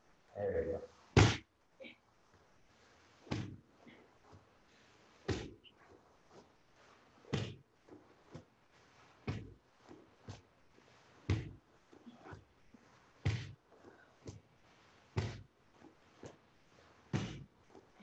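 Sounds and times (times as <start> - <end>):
bodies thudding on mat: 1.2 - 1.4, 3.2 - 3.6, 5.2 - 5.7, 7.3 - 8.5, 9.2 - 9.6, 11.2 - 11.6, 13.2 - 13.6, 15.1 - 15.5, 17.1 - 17.6.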